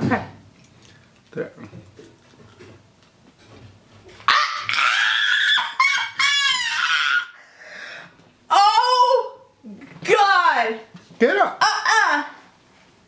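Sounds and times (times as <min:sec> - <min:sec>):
woman squealing in disgust: 0:04.3 - 0:07.4, 0:08.5 - 0:09.4.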